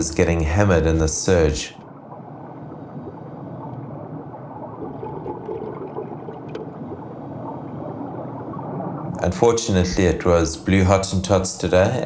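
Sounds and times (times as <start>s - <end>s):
underwater water surging: 0.0s - 10.3s
faint underwater clicks: 1.8s - 9.3s.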